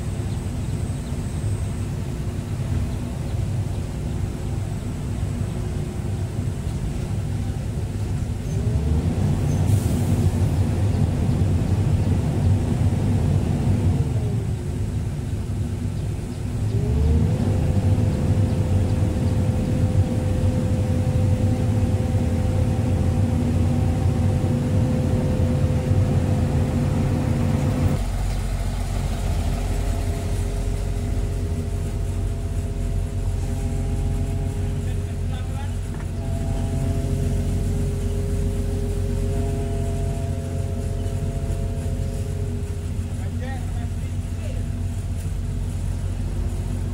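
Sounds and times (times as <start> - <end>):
excavator diesel engine running: 0.0 - 46.9
whining tone: 16.6 - 46.9.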